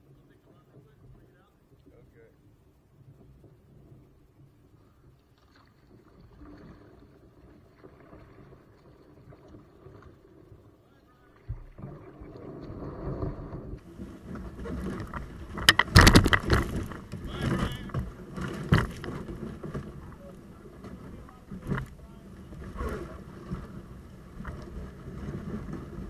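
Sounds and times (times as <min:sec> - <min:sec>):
kayak scraping onto dead leaves: 0:11.8 - 0:26.0.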